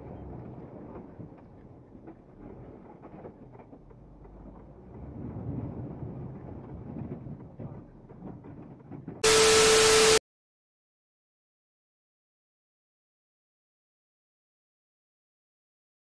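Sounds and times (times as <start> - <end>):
burst of hiss with tone: 9.2 - 10.2.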